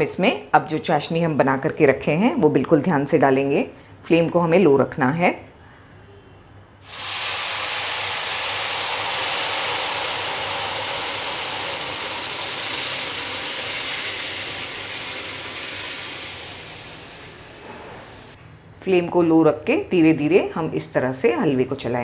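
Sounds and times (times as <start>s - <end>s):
syrup sizzling and bubbling: 6.8s - 18.4s.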